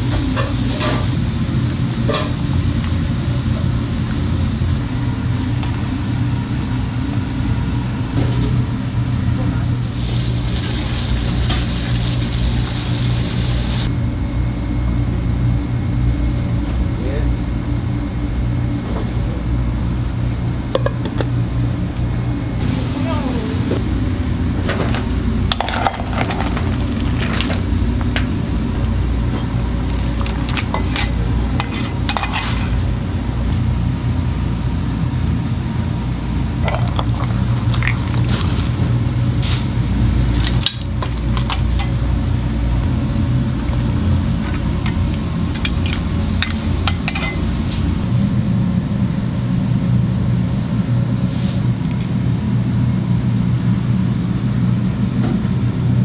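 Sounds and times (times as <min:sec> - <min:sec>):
gas burners rumbling: 0:00.0 - 0:56.0
metal utensils clinking: 0:30.3 - 0:32.8, 0:44.5 - 0:47.5.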